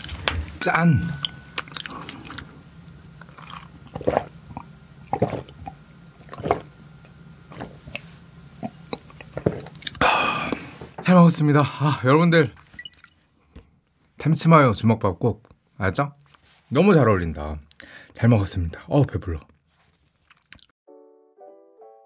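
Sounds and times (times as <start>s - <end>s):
wet gulps and swallows: 1.2s - 2.6s, 3.2s - 10.6s.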